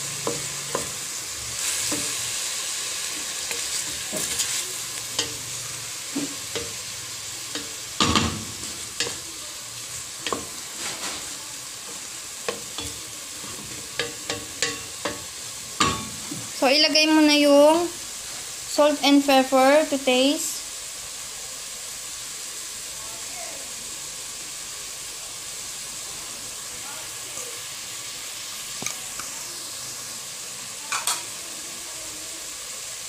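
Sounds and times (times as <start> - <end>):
meat sizzling in oil: 0.0 - 33.0
wooden spatula scraping a pot: 3.0 - 5.4, 10.2 - 15.0.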